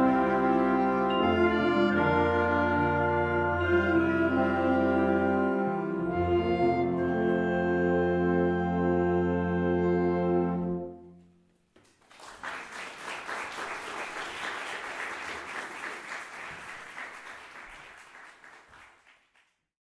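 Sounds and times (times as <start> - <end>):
audience applauding: 11.8 - 19.6.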